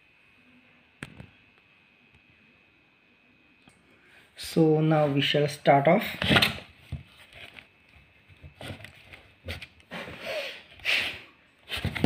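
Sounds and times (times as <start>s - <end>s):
cardboard box scraping: 11.6s - 12.0s.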